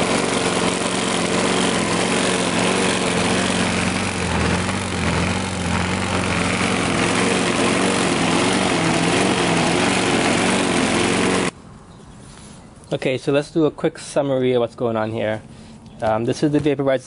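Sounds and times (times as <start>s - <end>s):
lawn mower engine running: 0.0s - 11.6s.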